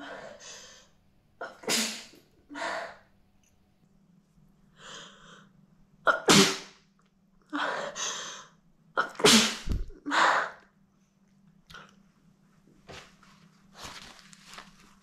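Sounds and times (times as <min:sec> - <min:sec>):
woman sneezing: 0:01.4 - 0:03.0, 0:06.1 - 0:06.7, 0:09.0 - 0:10.6.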